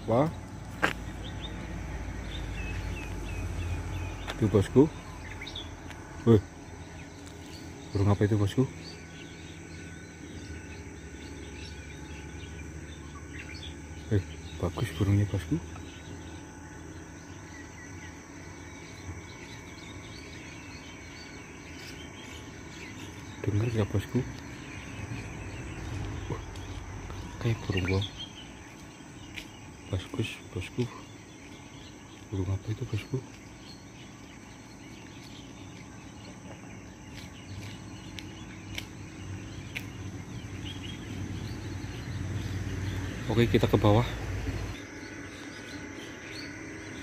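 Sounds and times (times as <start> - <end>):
faint bird chirps: 0.0 - 47.0
insects chorus: 0.0 - 47.0.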